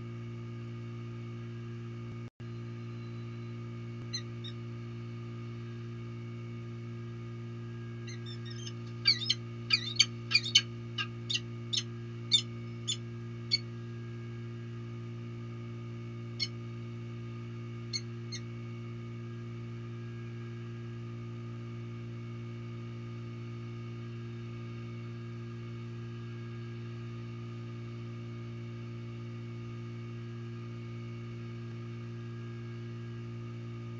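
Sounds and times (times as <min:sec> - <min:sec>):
steady low hum: 0:00.0 - 0:33.9
falcon calling: 0:08.1 - 0:13.6.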